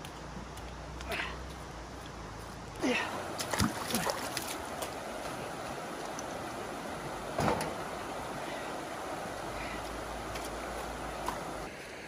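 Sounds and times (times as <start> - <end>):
river water rushing over rocks: 2.8 - 12.0.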